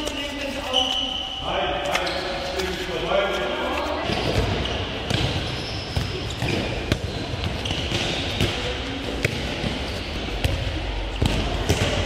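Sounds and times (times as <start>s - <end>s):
balls smacking in echoing hall: 0.0s - 12.0s.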